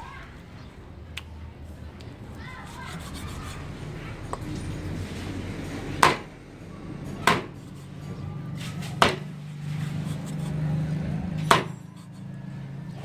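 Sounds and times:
cleaver chopping on wooden block: 0:06.0 - 0:06.3, 0:07.2 - 0:07.6, 0:09.0 - 0:09.3, 0:11.5 - 0:11.8.

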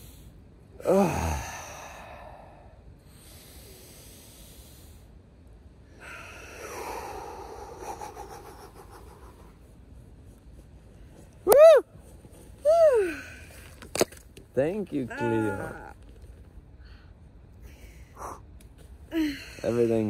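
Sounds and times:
slow deep breathing: 0:00.0 - 0:09.8, 0:16.7 - 0:19.9
voiced sigh: 0:00.8 - 0:02.8
exhale through pursed lips: 0:05.9 - 0:09.0.

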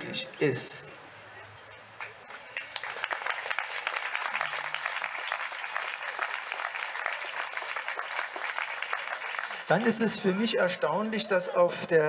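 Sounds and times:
audience applauding: 0:02.0 - 0:10.2.

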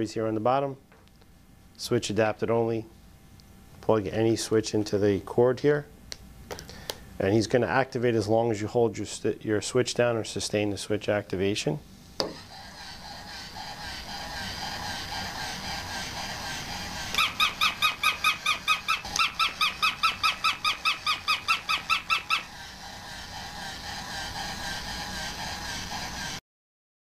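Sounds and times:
toy mechanism whirring: 0:12.2 - 0:26.4.

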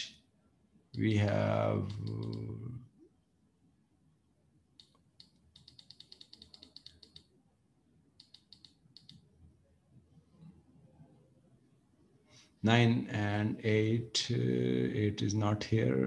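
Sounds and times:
mouse scroll wheel clicking: 0:01.8 - 0:02.5, 0:04.8 - 0:07.3, 0:08.2 - 0:09.2.

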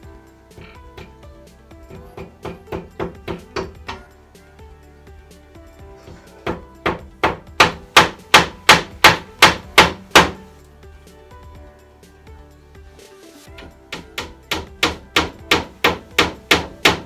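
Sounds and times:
hammer striking nails into plywood: 0:01.9 - 0:04.1, 0:06.5 - 0:10.4, 0:13.6 - 0:17.0.

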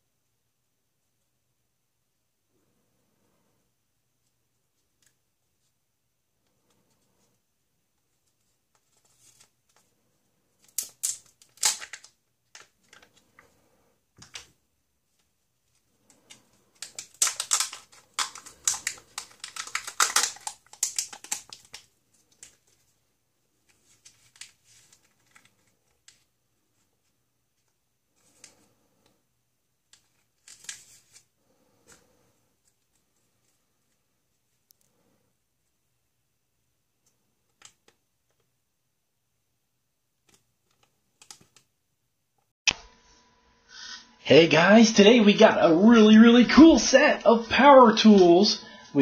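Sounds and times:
foil crinkling and tearing: 0:10.6 - 0:13.1, 0:16.8 - 0:22.6.

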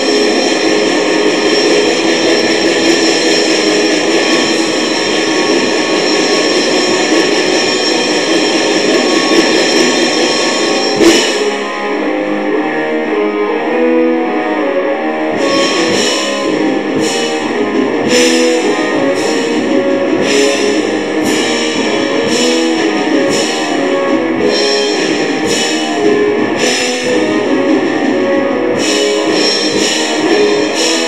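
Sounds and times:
sharp ringing hits: 0:00.0 - 0:12.0
distorted electric guitar riff: 0:00.0 - 0:31.0.

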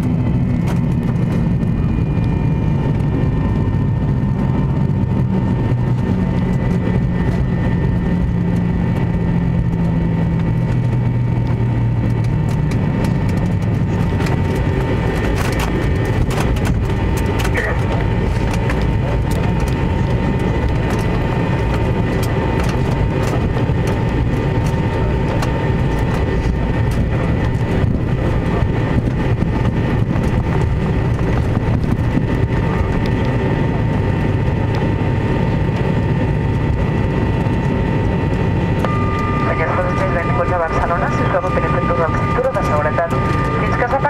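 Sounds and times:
airliner wheels rumbling: 0:00.0 - 0:44.0
jet engines whining: 0:00.0 - 0:44.0.

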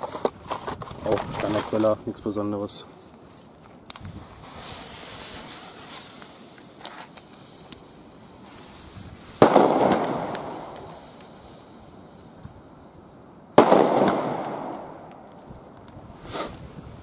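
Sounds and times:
faint hiss: 0:00.0 - 0:17.0
firecracker bang with echo: 0:09.4 - 0:11.0, 0:13.6 - 0:15.3.

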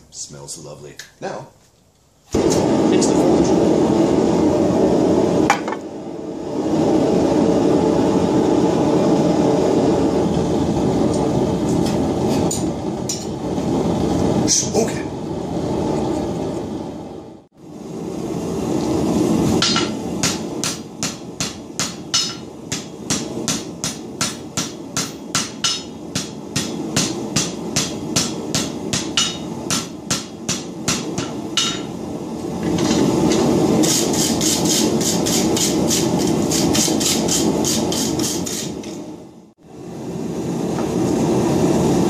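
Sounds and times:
gas forge burner rushing: 0:02.2 - 0:42.0
hammer striking metal on anvil: 0:19.6 - 0:31.9.

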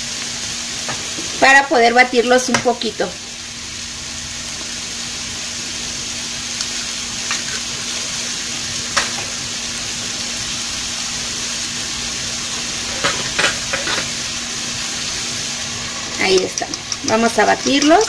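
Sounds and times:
vegetables sizzling in oil: 0:00.0 - 0:18.0.

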